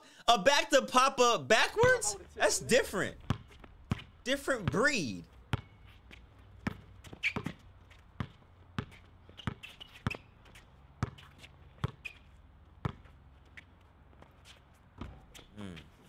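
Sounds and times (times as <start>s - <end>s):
basketball bouncing on hard court: 1.7s - 2.2s, 3.2s - 4.8s, 5.5s - 7.6s, 8.2s - 10.3s, 11.0s - 11.2s, 11.8s - 12.2s, 12.8s - 13.2s, 15.0s - 15.3s
shoe squeaks: 5.6s - 7.6s, 8.8s - 12.4s.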